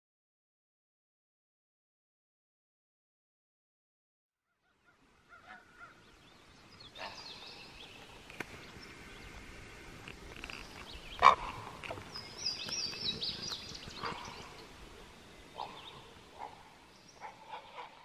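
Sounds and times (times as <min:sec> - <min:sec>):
steady low hiss: 0:04.8 - 0:18.0
birds chirping and whistling: 0:10.4 - 0:17.4.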